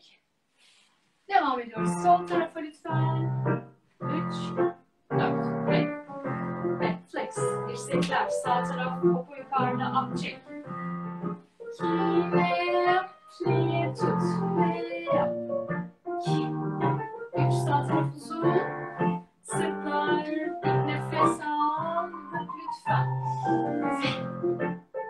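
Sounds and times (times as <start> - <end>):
piano music: 1.8 - 25.0
person singing: 11.8 - 15.4, 16.2 - 18.9, 19.5 - 24.3.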